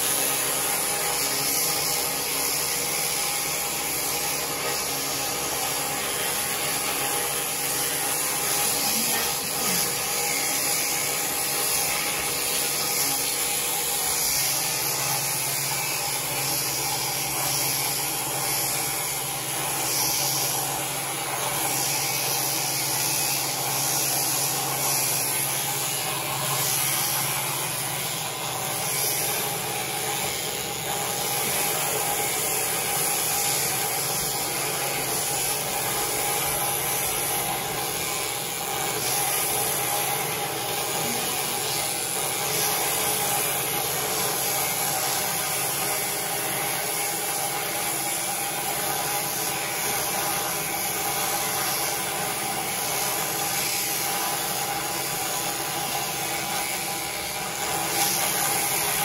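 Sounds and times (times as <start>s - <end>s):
shearing machine motor buzzing: 0.0s - 59.0s.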